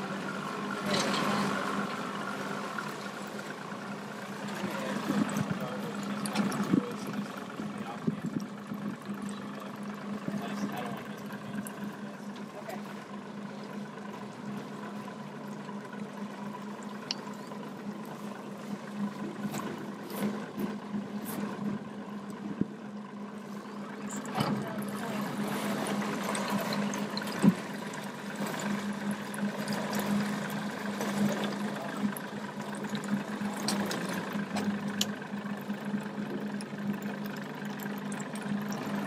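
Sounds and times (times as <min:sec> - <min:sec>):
boat motor humming: 0:00.0 - 0:39.0.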